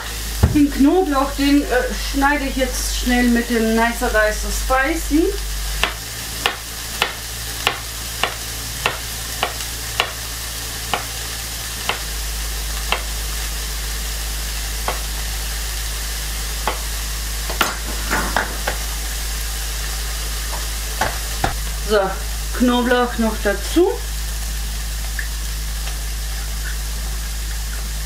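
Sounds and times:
vegetables sizzling in a frying pan: 0.0 - 28.0
knife knocking on cutting board: 17.5 - 18.8.

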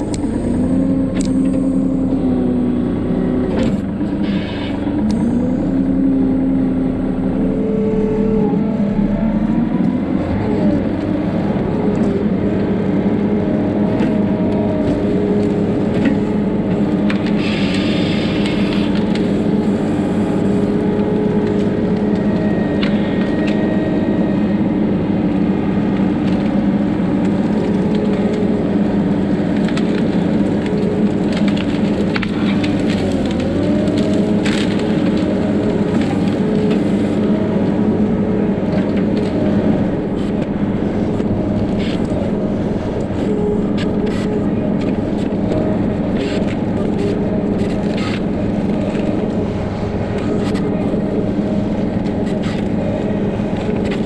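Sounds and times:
diesel engine running: 0.0 - 54.0
branches cracking and snapping: 26.1 - 37.8.

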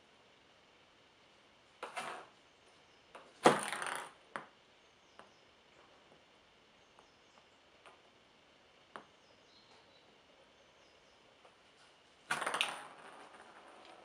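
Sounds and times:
rubber ball rolling on wood: 1.8 - 2.3, 3.1 - 4.6, 12.2 - 14.0.

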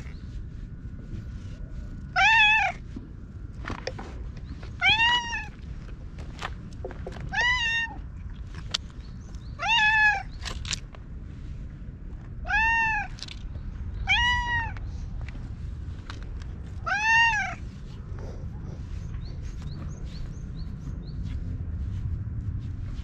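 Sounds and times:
cat meowing: 2.1 - 2.8, 4.8 - 5.5, 7.3 - 8.0, 9.6 - 10.3, 12.4 - 13.2, 14.0 - 14.8, 16.8 - 17.6.

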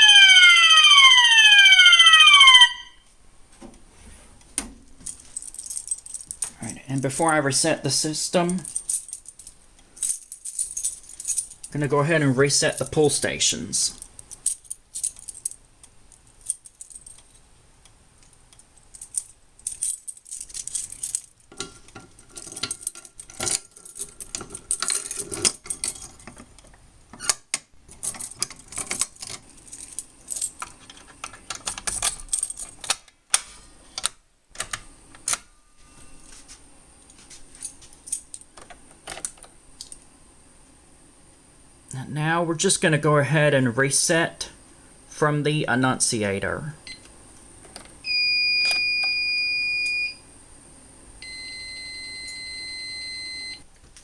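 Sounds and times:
keys jangling: 5.0 - 7.3, 8.5 - 11.8, 14.0 - 17.5, 18.2 - 26.8, 27.9 - 33.0
sharp clicks and rattles: 14.0 - 33.2.

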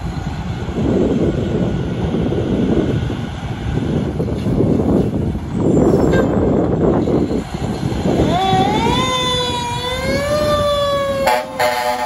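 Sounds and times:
fire truck engine rumbling: 0.0 - 12.0
mechanical siren wailing: 8.1 - 12.0.

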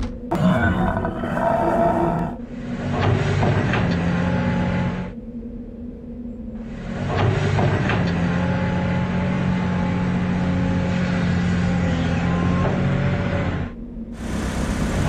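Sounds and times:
excavator engine running: 0.0 - 5.2, 6.6 - 15.0.

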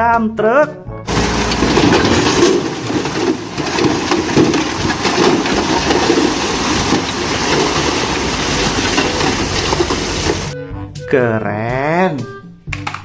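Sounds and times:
dump truck engine running: 1.1 - 10.6
rocky soil and stones tumbling: 1.1 - 10.6.

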